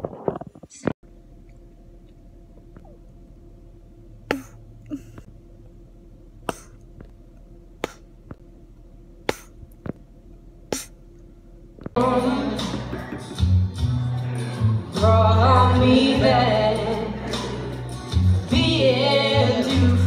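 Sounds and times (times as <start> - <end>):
bubble gum popping: 9.3 - 10.0
loud music: 12.0 - 20.0.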